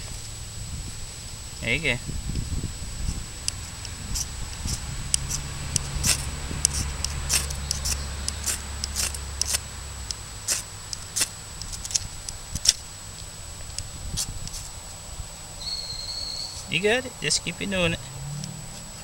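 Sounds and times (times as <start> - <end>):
ferro rod scraped with striker: 4.1 - 9.6, 10.5 - 12.8.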